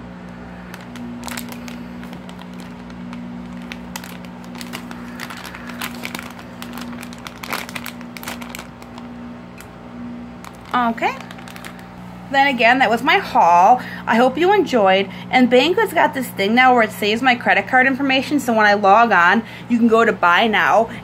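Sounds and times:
steady low hum: 0:00.0 - 0:21.0
plastic packaging crinkling: 0:00.3 - 0:09.8, 0:10.4 - 0:12.7.

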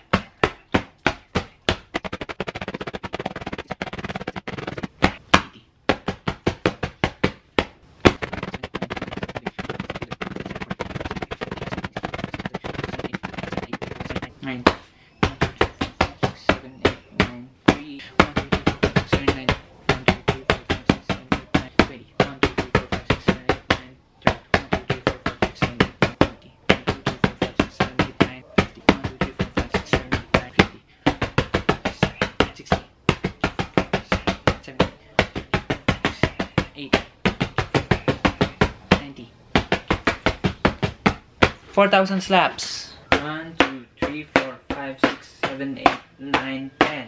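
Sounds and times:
hand slapping paper: 0:00.0 - 0:41.7, 0:43.1 - 0:47.0.

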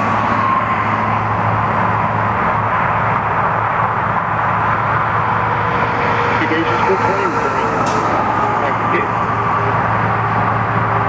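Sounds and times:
engine hum: 0:00.0 - 0:11.0
road traffic rush: 0:00.0 - 0:11.0.

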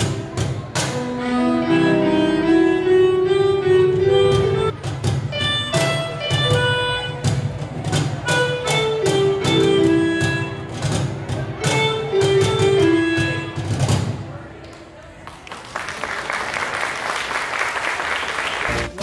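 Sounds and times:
cajon beat: 0:00.0 - 0:01.4, 0:03.8 - 0:14.3
electronic keyboard sustained notes: 0:00.8 - 0:04.8
bass line: 0:18.7 - 0:19.0.

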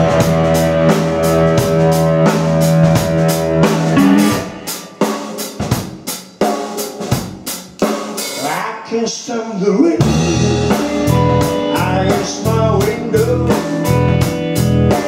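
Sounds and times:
live rock band playing: 0:00.0 - 0:08.7, 0:10.0 - 0:15.0.

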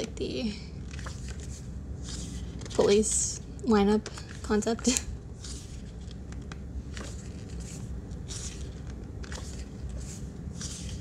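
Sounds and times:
paper pages turning: 0:00.8 - 0:03.2, 0:05.4 - 0:11.0.

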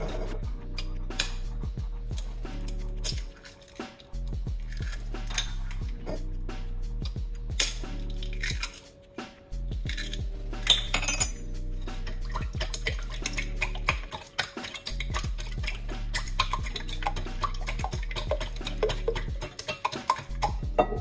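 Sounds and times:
utensil clinking against glass bowl: 0:12.2 - 0:21.0.

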